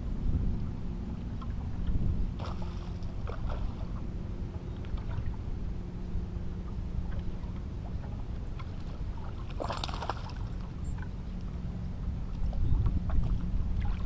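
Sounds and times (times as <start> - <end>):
boat engine low rumble: 0.0 - 14.0
water lapping against hull: 0.1 - 14.0
water splash: 2.4 - 3.9, 9.2 - 10.7.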